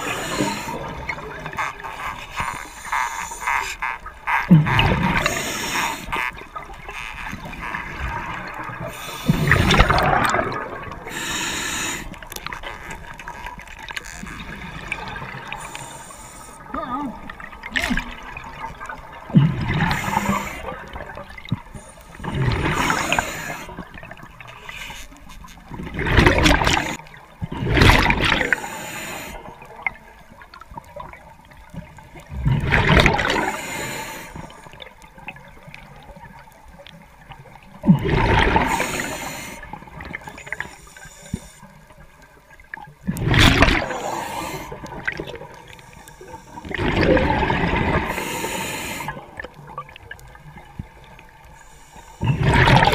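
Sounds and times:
diver exhaling bubbles: 7.7s - 12.1s, 19.2s - 21.2s, 22.2s - 24.2s, 32.3s - 34.1s, 37.8s - 40.2s, 46.6s - 49.4s, 52.2s - 52.9s.

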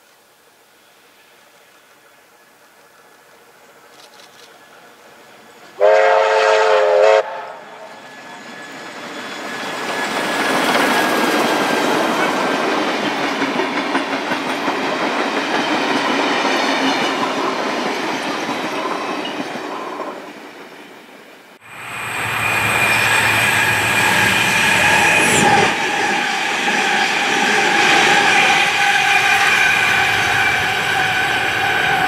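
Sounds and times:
steam locomotive whistle: 5.8s - 8.6s, 21.6s - 32.0s
train wheels clattering on rails: 8.0s - 20.9s.

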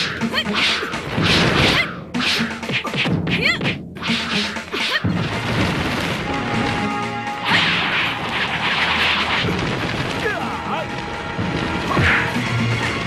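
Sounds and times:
fight swishes and hits: 0.0s - 5.8s
dramatic music: 0.0s - 13.0s
sustained crash: 5.1s - 13.0s.

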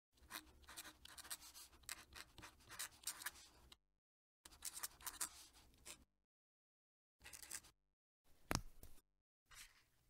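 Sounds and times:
pen nib scratching paper: 0.2s - 3.5s, 4.5s - 6.0s.

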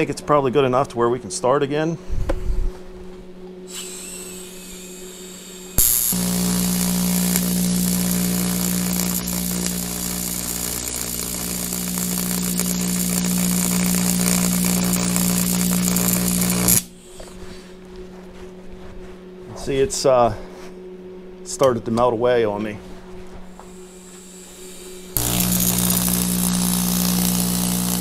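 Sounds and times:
welding arc buzzing: 3.8s - 17.0s, 23.6s - 28.0s
high-frequency arc crackle: 4.0s - 17.0s, 23.9s - 28.0s.

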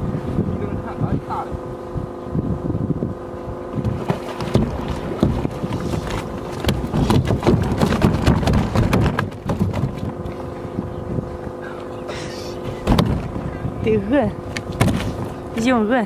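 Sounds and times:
motor hum: 0.0s - 16.0s
knocks and clatter: 4.0s - 10.1s.

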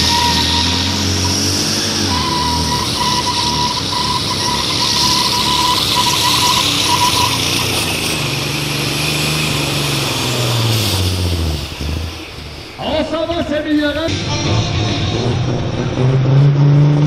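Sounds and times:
high turbo whistle: 0.0s - 13.1s
tractor diesel engine at full power: 0.0s - 17.0s.

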